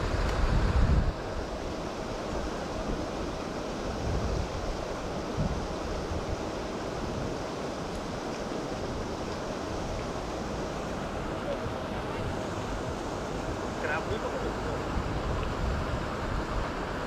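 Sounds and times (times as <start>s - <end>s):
water rushing from aerators: 0.0s - 17.0s
wind buffeting microphone: 0.0s - 17.0s.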